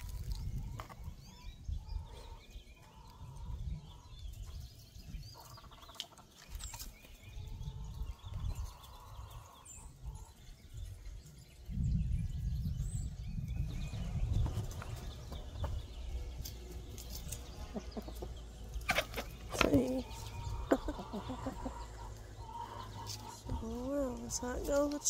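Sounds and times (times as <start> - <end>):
wind buffeting microphone: 0.0 - 5.6, 7.0 - 18.8, 19.4 - 25.0
hens clucking: 14.2 - 25.0.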